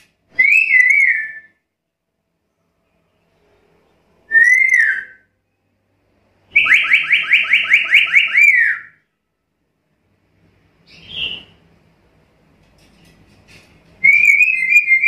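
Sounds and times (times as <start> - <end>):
parrot whistling calls: 14.0 - 15.0.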